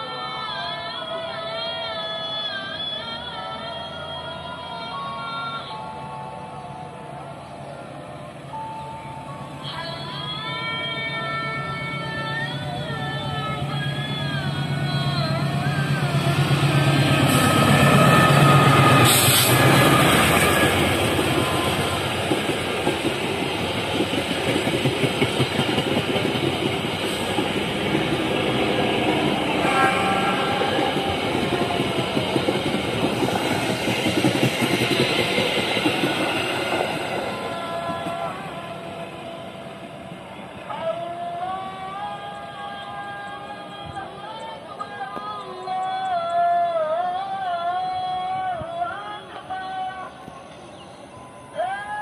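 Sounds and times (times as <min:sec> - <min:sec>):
diesel locomotive engine hum: 0:00.0 - 0:52.0
train wheels clattering over rails: 0:16.2 - 0:38.7.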